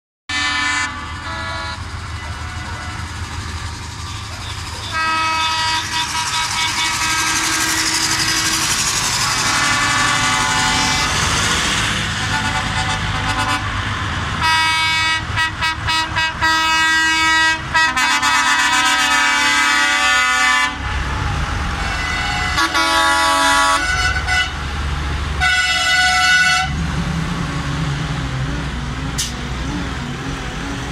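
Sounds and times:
tractor horns honking: 0.3s - 3.3s, 4.0s - 11.4s, 12.2s - 13.8s, 14.4s - 20.9s, 21.8s - 24.7s, 25.4s - 26.8s
tractor diesel engines running: 0.3s - 30.9s.

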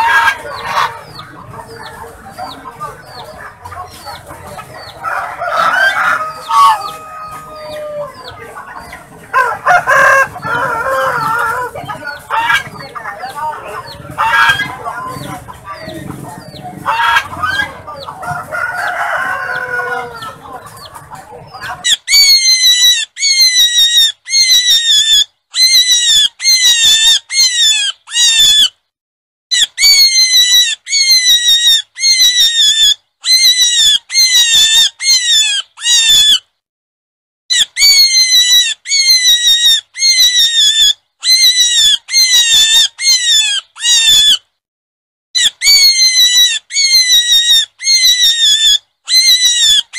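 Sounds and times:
jumble of animal calls: 0.0s - 28.7s, 29.5s - 36.4s, 37.5s - 44.4s, 45.4s - 49.9s
high-pitched animal squeals: 21.8s - 28.8s, 29.5s - 36.5s, 37.5s - 44.4s, 45.4s - 49.9s.

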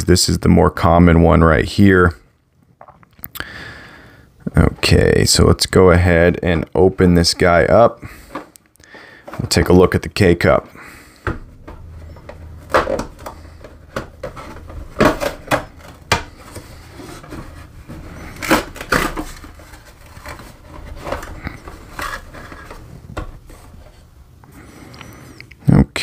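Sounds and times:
cardboard box tearing: 13.2s - 22.7s.

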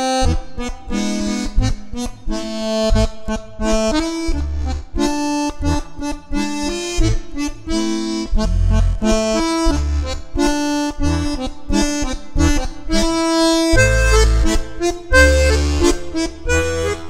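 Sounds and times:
accordion playing a tune: 0.0s - 17.0s.

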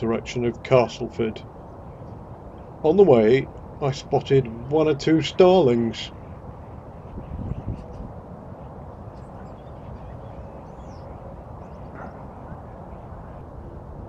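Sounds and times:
faint bird calls: 6.0s - 13.8s.

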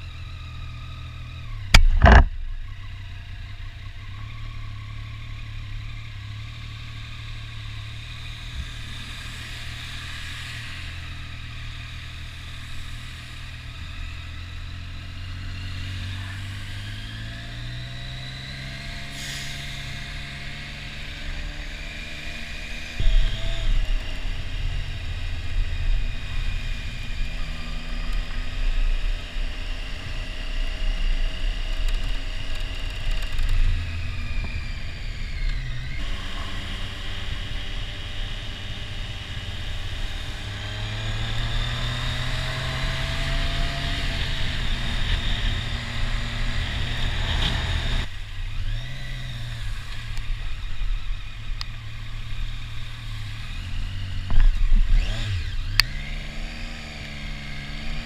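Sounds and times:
motorcycle engine accelerating: 0.0s - 58.0s
low rumble: 1.7s - 3.2s
hiss from wet road: 19.0s - 20.4s.

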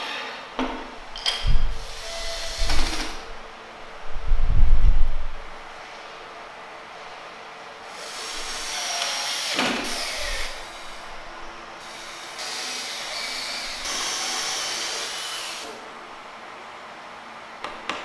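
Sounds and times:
power tool running: 1.6s - 3.3s, 7.9s - 11.1s, 11.8s - 15.8s.

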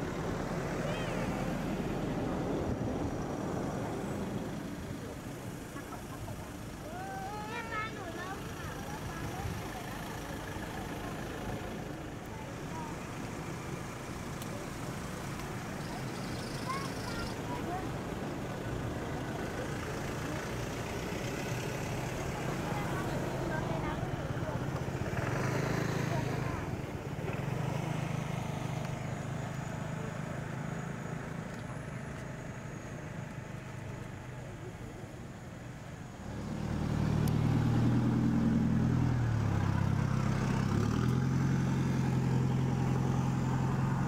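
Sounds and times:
vehicle engine idling: 0.0s - 44.0s.

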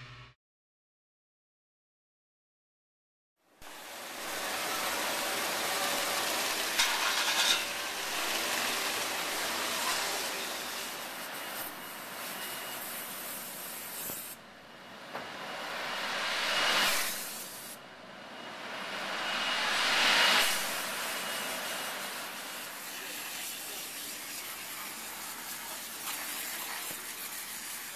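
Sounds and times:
steam and water spraying: 3.6s - 14.4s, 15.7s - 17.8s, 18.8s - 27.9s
steam cleaner nozzle hissing: 4.0s - 14.4s, 20.4s - 27.9s
machinery running: 14.4s - 26.0s.

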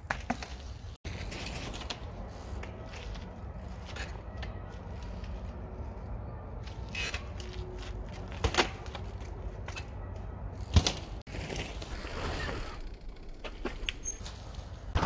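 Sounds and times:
bike hitting concrete blocks: 7.0s - 12.6s.

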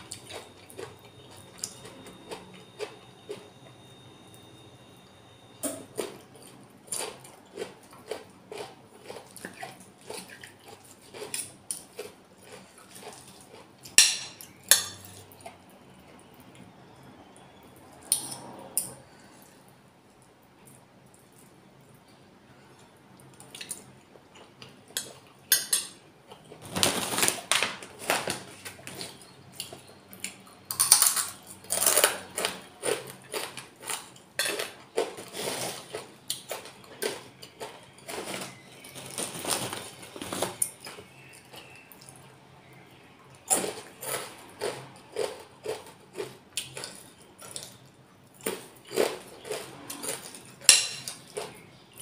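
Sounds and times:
chewing: 6.0s - 14.0s, 43.4s - 52.0s
cutlery clinking on plate: 13.9s - 15.2s, 50.6s - 51.4s.

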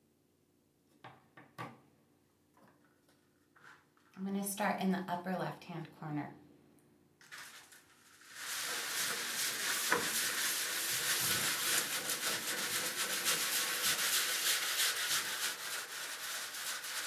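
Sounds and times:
scrub brush scrubbing tray: 7.2s - 17.0s.

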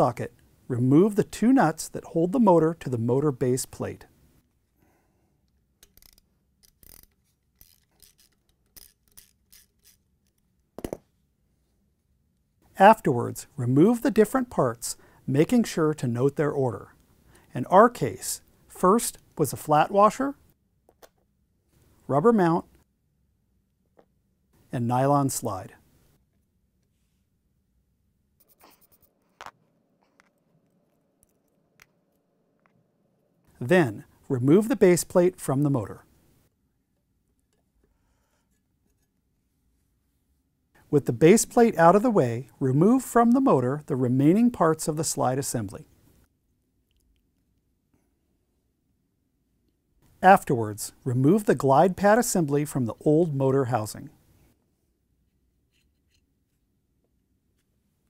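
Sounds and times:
ratchet clicking and rasping: 5.8s - 10.4s
faint clicks of small parts: 46.8s - 48.0s.

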